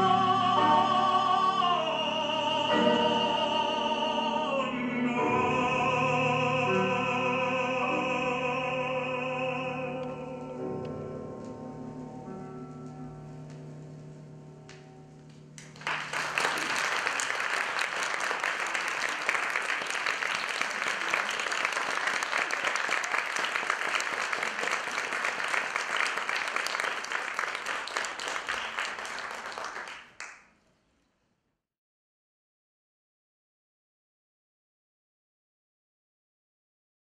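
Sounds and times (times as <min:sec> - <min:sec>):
audience applause: 0:15.6 - 0:30.4.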